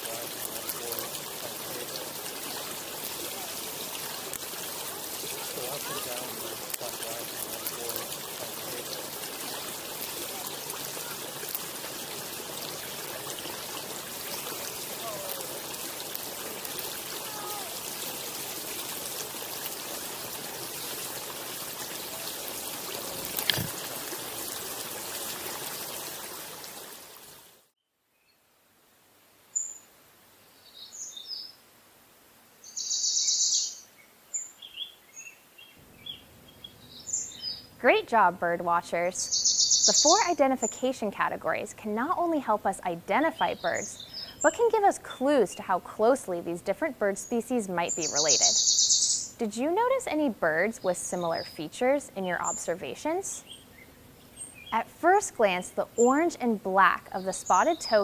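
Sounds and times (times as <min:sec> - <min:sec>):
small birds chirping: 0:00.0 - 0:23.7, 0:32.6 - 0:37.8, 0:39.0 - 0:41.0, 0:43.1 - 0:45.7, 0:47.0 - 0:58.0
steady rushing hiss: 0:00.0 - 0:27.7.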